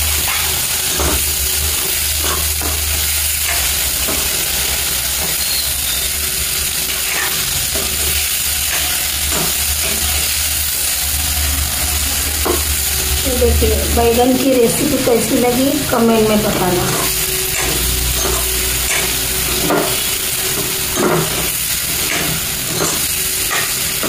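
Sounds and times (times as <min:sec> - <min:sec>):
food sizzling in oil: 0:00.0 - 0:24.0
metal ladle scraping pan: 0:06.8 - 0:11.8, 0:16.8 - 0:24.0.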